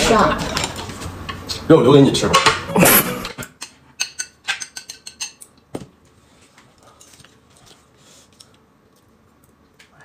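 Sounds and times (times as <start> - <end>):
chopsticks tapping on plates: 2.2 - 5.9.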